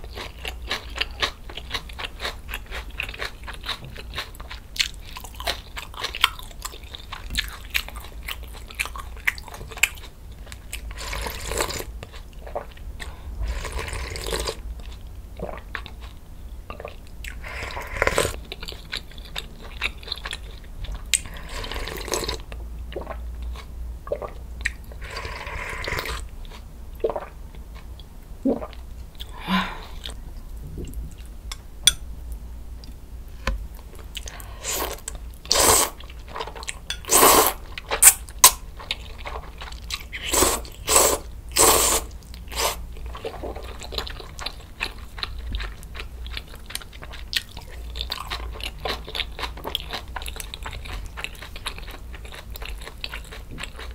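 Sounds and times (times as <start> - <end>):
crunching and chewing kimchi: 0.0 - 28.1, 33.7 - 53.9
slurping broth: 25.0 - 26.2, 34.6 - 36.0, 37.0 - 38.2, 40.2 - 43.7.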